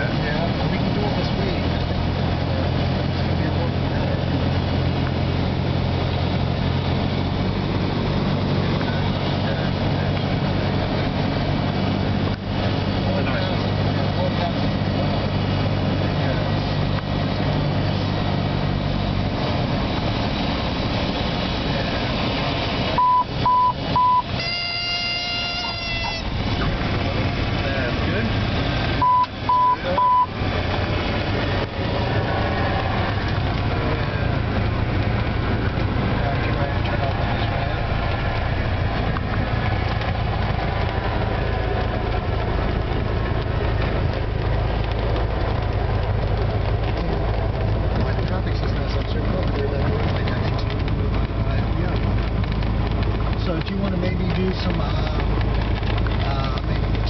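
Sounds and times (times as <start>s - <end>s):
aircraft engine: 0.0s - 57.0s
rush of wind and propeller: 0.0s - 57.0s
short beeps: 23.0s - 25.0s, 29.0s - 30.3s
stall warning horn buzzing: 23.0s - 26.6s.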